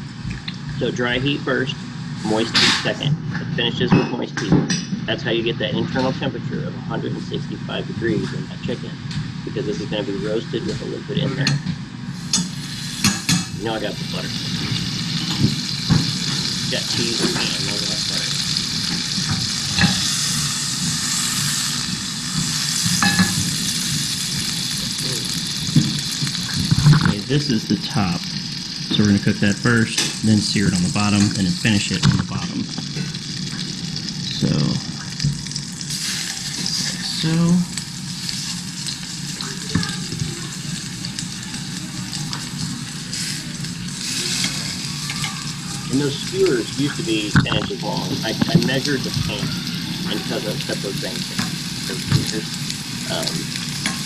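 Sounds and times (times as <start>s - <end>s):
fat sizzling in a pan: 11.9s - 54.0s.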